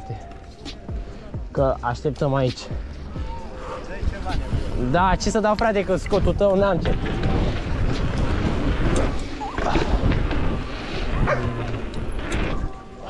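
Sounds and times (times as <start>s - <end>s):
steady rushing noise: 0.7s - 13.0s.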